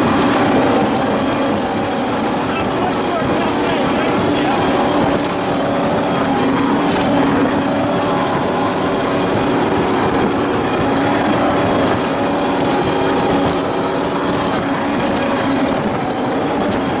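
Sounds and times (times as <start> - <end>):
powerboat engine drone: 0.0 - 17.0
rush of wind and water: 0.0 - 17.0.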